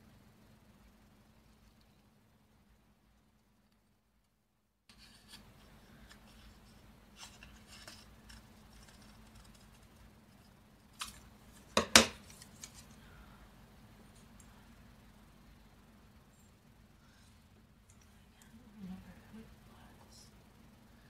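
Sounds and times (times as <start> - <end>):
paper rustling: 6.0 - 9.9, 11.0 - 13.0
scissors snipping paper: 7.2 - 9.8.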